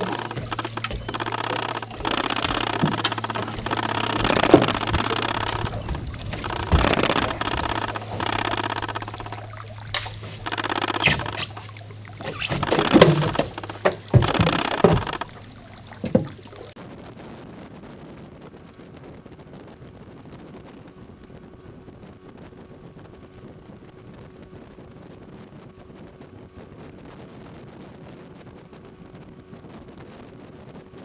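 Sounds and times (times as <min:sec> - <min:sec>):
sharp knocks: 0:00.0 - 0:16.7
low motor hum: 0:00.0 - 0:16.8
water splashing and sloshing: 0:00.0 - 0:16.8.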